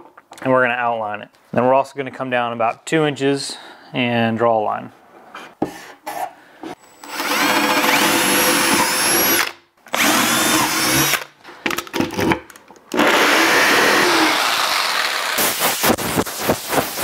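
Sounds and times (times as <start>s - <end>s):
cordless drill boring into wood: 6.9s - 11.3s, 12.9s - 15.4s
jigsaw cutting wood: 6.9s - 11.3s, 12.9s - 15.5s.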